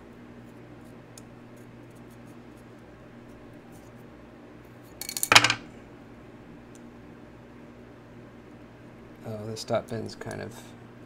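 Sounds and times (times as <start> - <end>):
knife parts clicking and rattling: 5.0 - 5.6.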